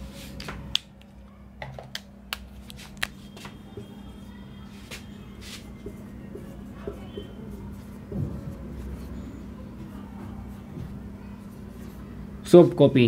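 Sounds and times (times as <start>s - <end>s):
marker tapping and scratching on whiteboard: 5.0s - 12.0s.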